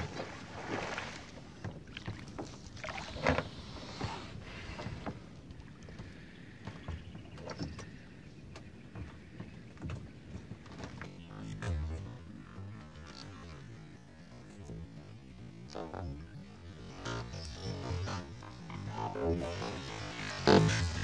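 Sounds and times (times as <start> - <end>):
water splashing and sloshing: 0.0 - 13.8.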